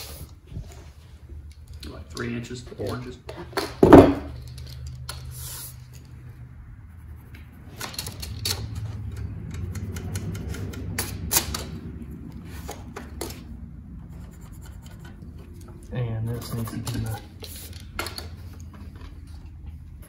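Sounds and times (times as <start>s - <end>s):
tape measure and pencil tapping: 7.3s - 11.7s.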